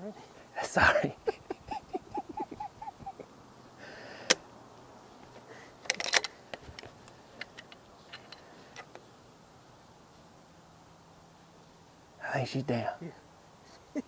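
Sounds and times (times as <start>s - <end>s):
rattle of small clicks: 5.8s - 9.0s.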